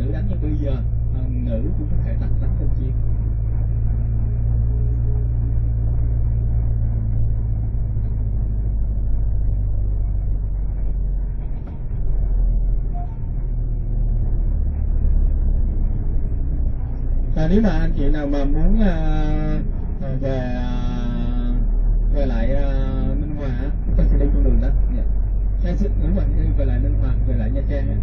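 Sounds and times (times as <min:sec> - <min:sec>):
bus engine drone: 0:00.0 - 0:28.0
tyre and road rumble: 0:00.0 - 0:28.0.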